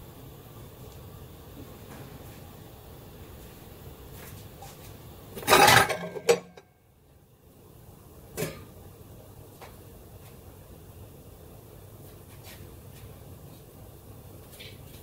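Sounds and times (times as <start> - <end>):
metal wok lid clattering: 5.4 - 6.6.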